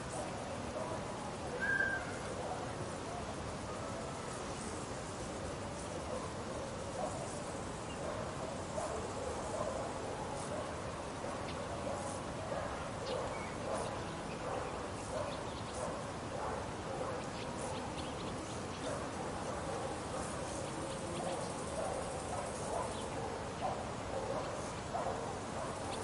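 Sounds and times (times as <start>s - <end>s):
distant animal calls: 1.5s - 2.4s
bird chirps: 1.6s - 2.3s.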